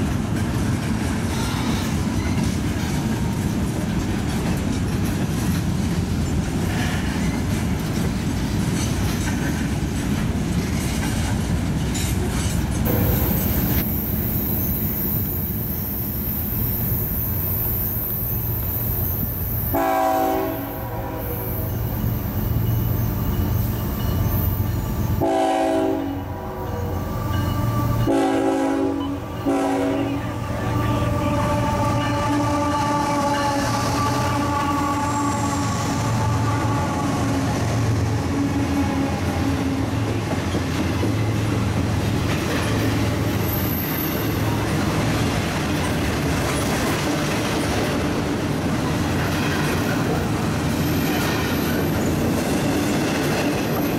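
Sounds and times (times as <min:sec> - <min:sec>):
diesel locomotive engine rumbling: 0:00.0 - 0:53.9
freight train rumble and wheel clatter: 0:00.0 - 0:53.9
train air horn blasts: 0:19.7 - 0:22.0, 0:24.5 - 0:40.3.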